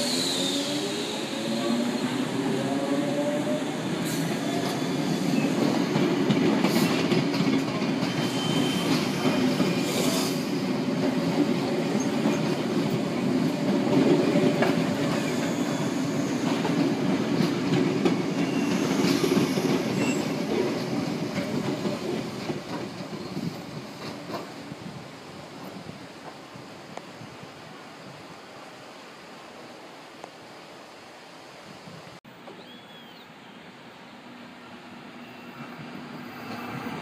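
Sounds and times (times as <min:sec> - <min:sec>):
train wheels rumbling on track: 0:00.0 - 0:27.9, 0:34.4 - 0:37.0
train wheels clacking: 0:04.1 - 0:24.6.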